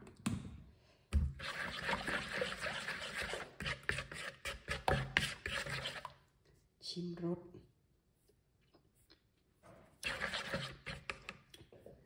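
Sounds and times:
plastic spoon scraping bowl: 1.2 - 6.2, 10.0 - 11.5.

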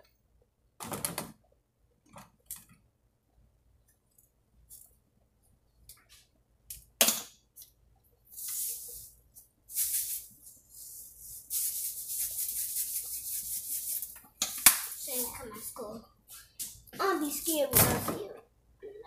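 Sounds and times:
shaken rattle: 8.4 - 9.1, 9.7 - 14.2, 14.8 - 15.5.

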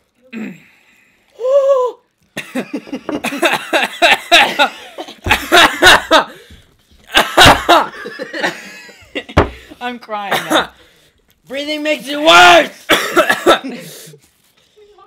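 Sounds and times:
boys laughing: 2.4 - 9.8, 12.9 - 14.0.

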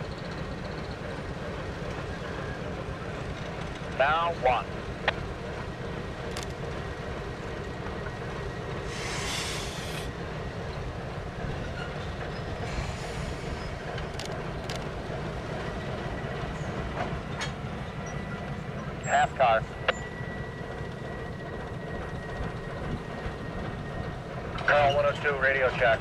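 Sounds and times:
freight train rumbling: 0.0 - 26.0
sharp train clanks: 0.0 - 26.0
brief hiss: 8.9 - 10.1.

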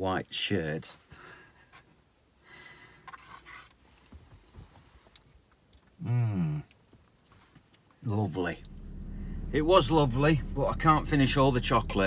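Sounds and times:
breathing: 1.1 - 1.6, 2.4 - 3.4.

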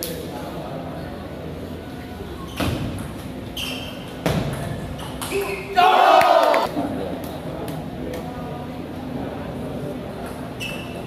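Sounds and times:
crowd chatter: 4.6 - 11.0
loud shouting: 5.7 - 6.7.

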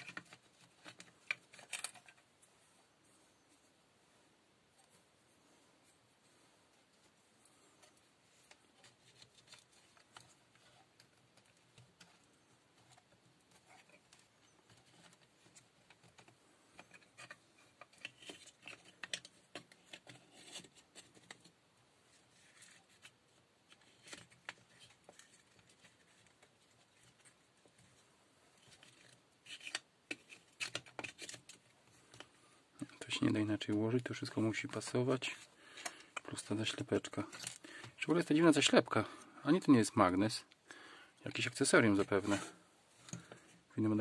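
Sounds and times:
small plastic parts clicking: 0.0 - 2.2, 28.6 - 32.3.

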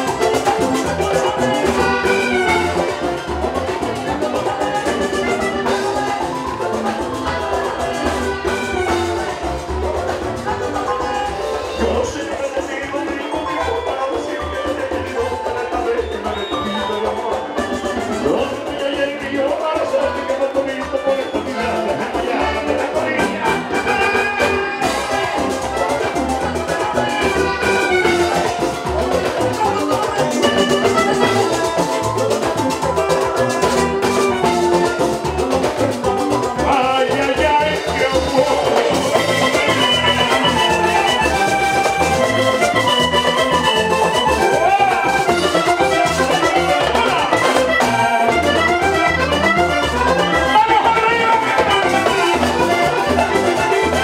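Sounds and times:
button accordion melody: 0.0 - 54.0
caja drum: 0.0 - 54.0
electric bass: 0.0 - 54.0
guitar: 0.0 - 54.0.

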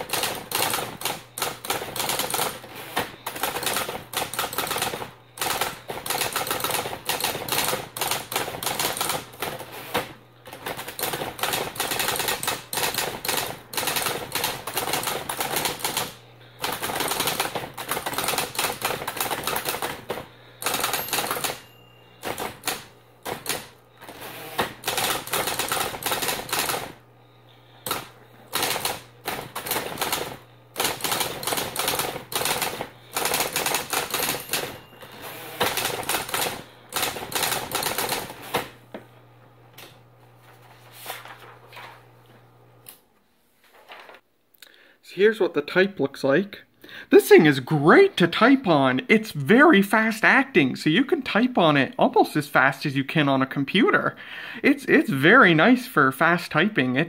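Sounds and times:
typewriter typebar strikes: 0.0 - 26.9, 27.8 - 38.8
typewriter motor hum: 0.0 - 38.9.

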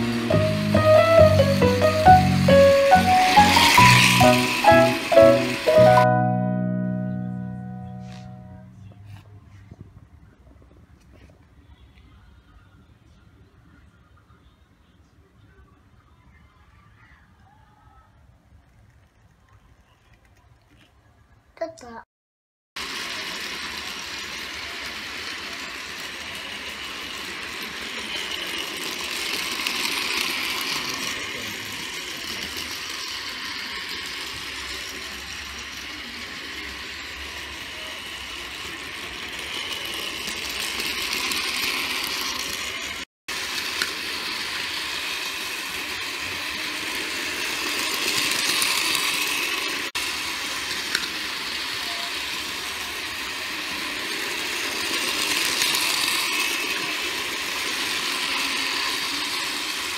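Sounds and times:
toy train motors whirring: 0.0 - 6.2, 18.5 - 21.0, 22.8 - 59.9
wheels rattling on plastic rails: 22.8 - 59.9.

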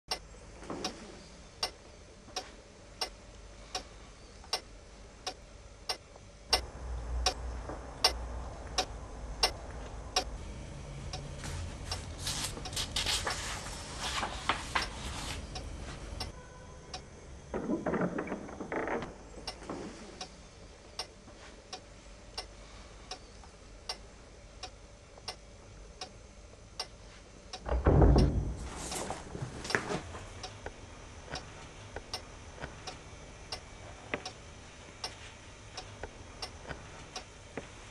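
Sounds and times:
clock ticking: 1.6 - 1.8, 4.5 - 7.4, 8.0 - 10.3, 26.8 - 28.3
book pages rustling: 11.4 - 16.0.

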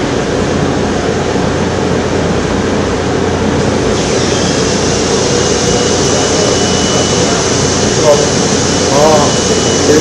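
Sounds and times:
machinery rushing noise: 0.0 - 10.0
thin high whistle: 5.6 - 7.6.

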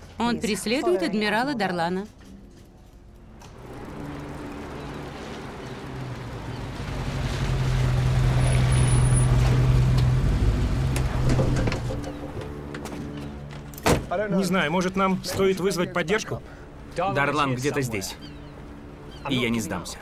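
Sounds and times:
vehicle engines rumbling: 0.0 - 20.0.

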